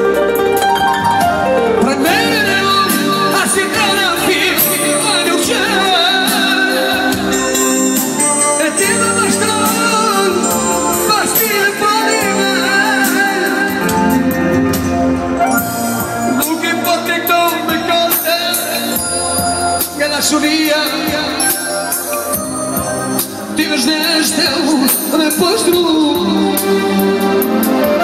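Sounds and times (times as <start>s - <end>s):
electronic keyboard accompaniment: 0.0s - 28.0s
man singing into microphone: 1.8s - 14.8s, 16.2s - 22.4s, 23.2s - 27.2s.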